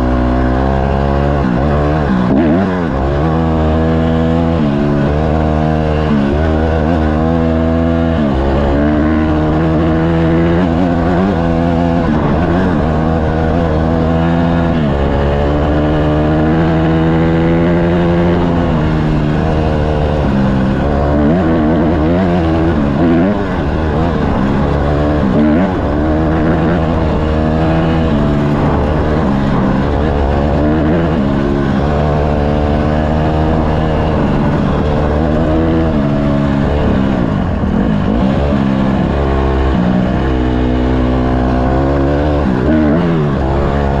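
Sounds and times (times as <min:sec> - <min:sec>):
dirt bike engine revving: 0:00.0 - 0:44.0.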